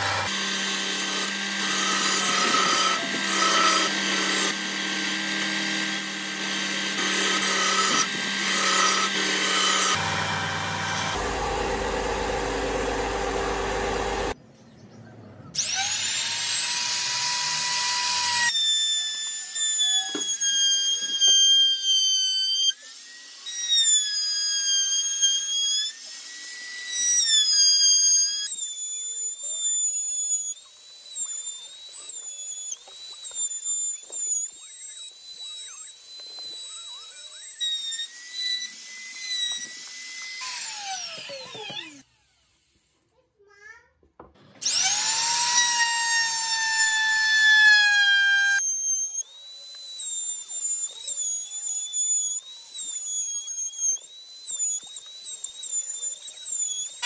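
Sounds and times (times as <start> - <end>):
belt sander sanding wood: 0.0 - 14.4, 24.9 - 42.4, 44.6 - 57.0
router whining while cutting wood: 0.0 - 14.4, 15.6 - 43.0, 44.4 - 57.0.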